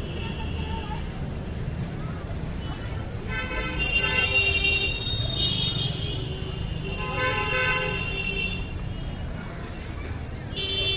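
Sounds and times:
low traffic rumble: 0:00.0 - 0:10.9
vehicle horns honking: 0:03.3 - 0:09.2.

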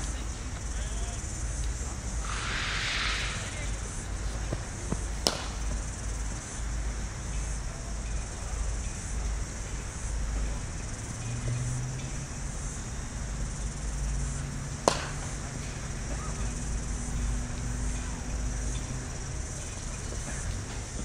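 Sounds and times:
outdoor background hiss: 0:00.0 - 0:21.0
cricket bat striking ball: 0:04.9 - 0:05.8, 0:14.8 - 0:16.3.

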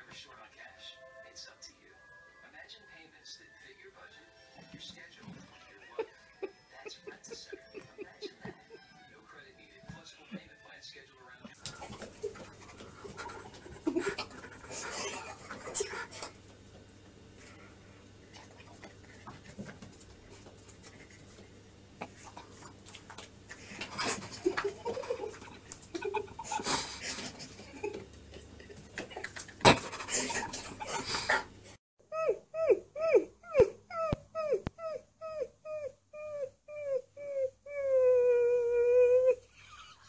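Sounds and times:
puppy yelping: 0:32.2 - 0:39.4.

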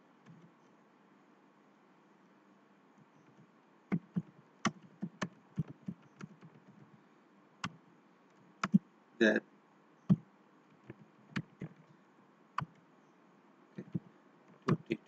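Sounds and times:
typing on computer keyboard: 0:03.9 - 0:06.7, 0:10.8 - 0:11.8.

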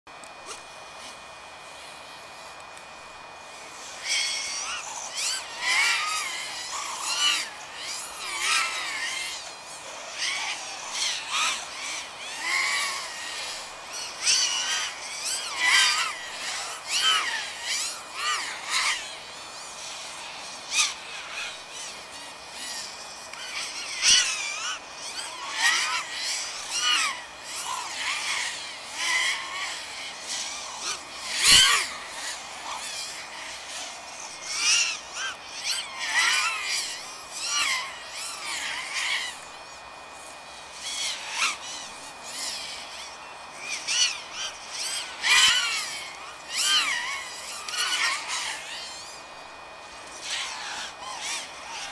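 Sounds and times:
quadcopter motors whining: 0:00.1 - 0:51.9.

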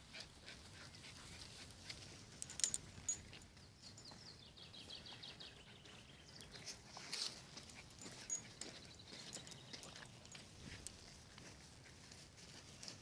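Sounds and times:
songbird trill: 0:02.4 - 0:06.8, 0:08.0 - 0:10.5.

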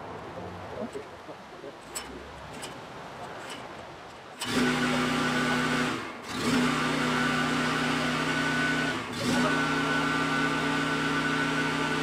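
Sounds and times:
generator engine running: 0:04.4 - 0:12.0.

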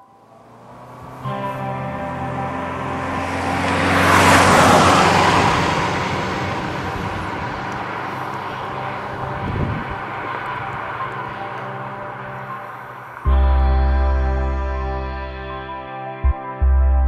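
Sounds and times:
car passing by: 0:00.0 - 0:13.5.

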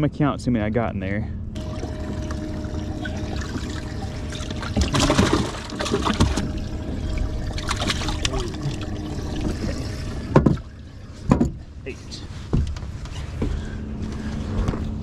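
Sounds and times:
water splashing and sloshing: 0:01.6 - 0:14.9.

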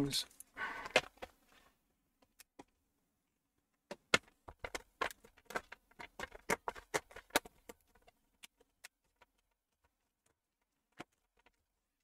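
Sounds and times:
plastic laptop case clicks and knocks: 0:03.8 - 0:09.4.

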